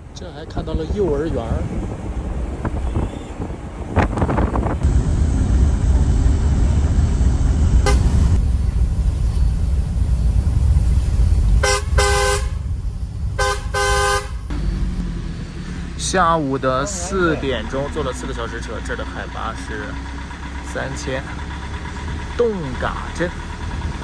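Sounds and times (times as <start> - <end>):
bus engine and road rumble: 0.0 - 24.0
vehicle horn tooting: 7.8 - 8.2, 11.6 - 12.6, 13.4 - 14.5.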